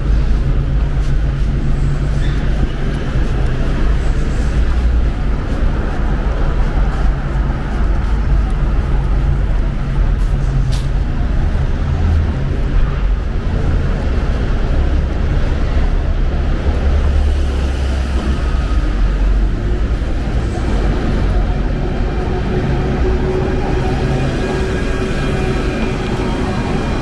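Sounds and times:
cars and buses passing: 0.0s - 27.0s.

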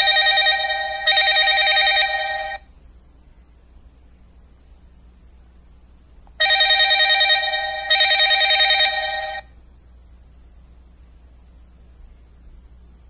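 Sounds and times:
telephone ringing: 0.0s - 2.7s, 6.4s - 9.5s
faint low hum: 0.0s - 13.0s.

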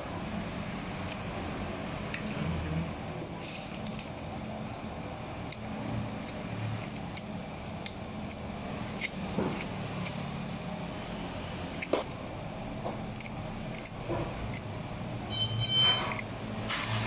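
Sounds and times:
knife clicking and scraping: 5.4s - 10.4s, 13.0s - 14.8s, 15.8s - 16.4s.

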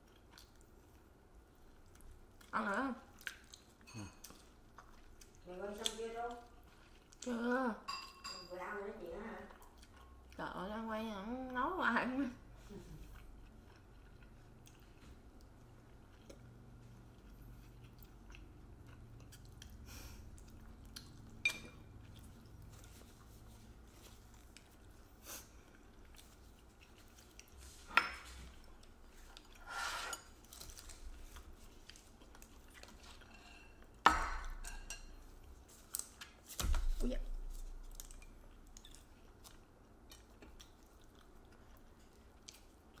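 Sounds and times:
people chewing food: 0.0s - 7.8s, 9.1s - 43.0s
dishes and chopsticks clinking: 7.8s - 8.5s, 33.0s - 35.3s.

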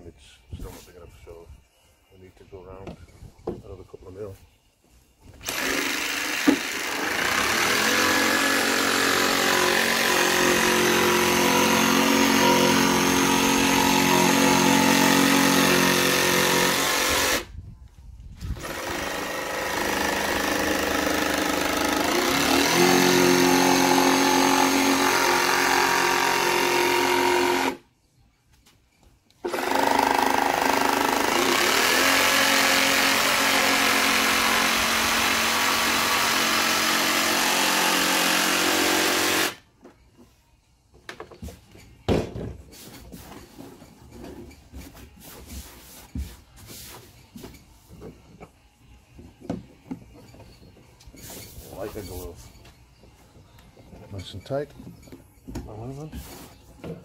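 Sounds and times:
jigsaw cutting plastic: 5.4s - 17.5s, 18.6s - 27.8s, 29.5s - 39.6s.

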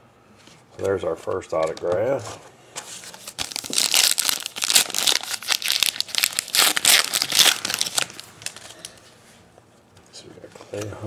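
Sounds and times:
plastic packaging crinkling: 2.9s - 9.0s.

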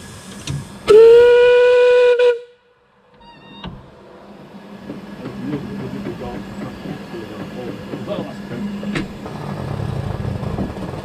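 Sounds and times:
steam locomotive whistle blast: 0.8s - 2.6s
train rumbling along: 3.8s - 11.0s.

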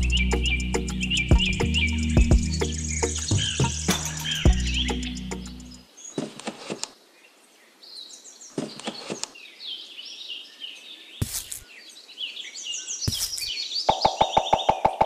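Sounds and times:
birds chirping: 0.0s - 15.0s
rustling knocks in sand: 8.6s - 9.3s, 11.2s - 11.7s, 13.1s - 13.6s.

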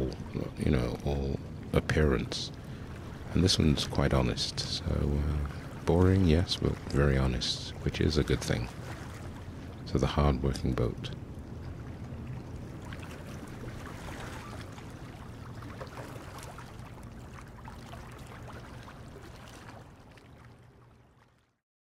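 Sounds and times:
steady low rumble: 0.0s - 15.8s
water lapping and splashing: 0.0s - 21.6s.

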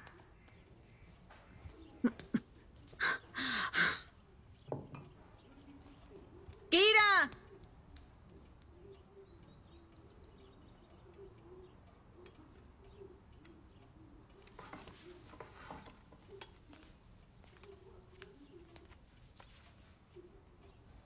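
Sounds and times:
cutlery clinking on plates: 10.8s - 20.0s.

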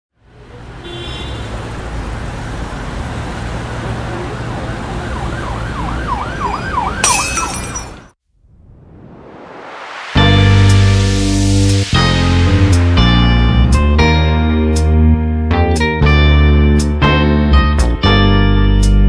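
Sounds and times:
rising whoosh: 8.3s - 14.4s
noisy synth drone: 8.6s - 14.0s.

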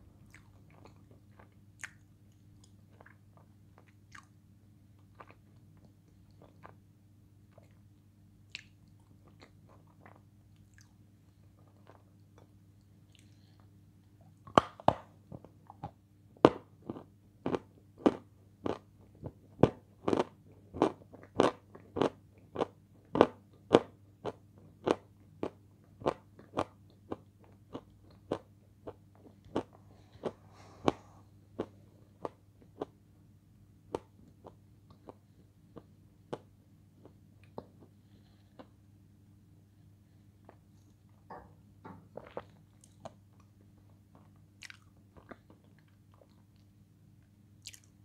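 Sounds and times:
person chewing crunchy food: 0.2s - 3.2s, 15.7s - 33.0s, 42.2s - 43.2s, 44.1s - 46.6s, 47.6s - 47.9s.

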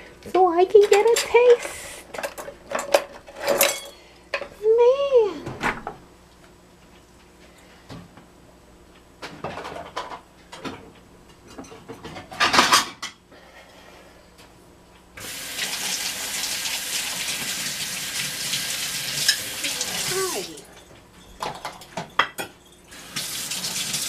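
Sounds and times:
kitchen things clattering: 0.7s - 4.6s, 9.3s - 13.2s, 19.2s - 23.0s
kitchen tap running: 15.2s - 20.7s, 22.9s - 24.0s.

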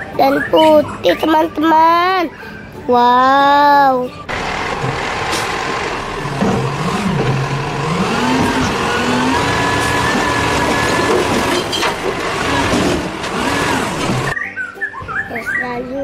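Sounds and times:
garbage truck engine revving: 4.3s - 14.4s.

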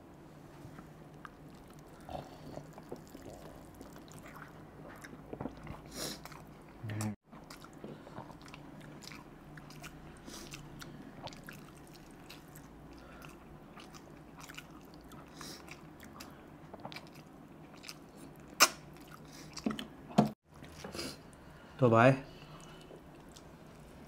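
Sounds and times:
chewing meat off the bone: 1.2s - 19.7s
wet mouth noises: 13.8s - 19.7s.

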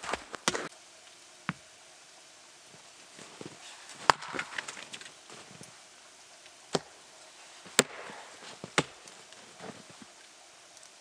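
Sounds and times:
axe chopping wood: 4.0s - 4.8s, 6.7s - 6.9s, 7.7s - 9.0s.

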